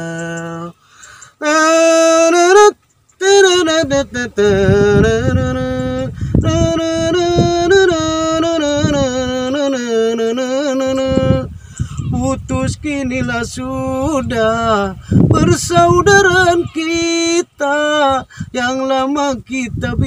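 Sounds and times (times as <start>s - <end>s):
man singing slow ballad: 0.0s - 20.0s
singer breathing: 0.7s - 1.4s, 6.1s - 6.4s, 11.5s - 12.1s, 15.0s - 15.3s, 18.2s - 18.6s.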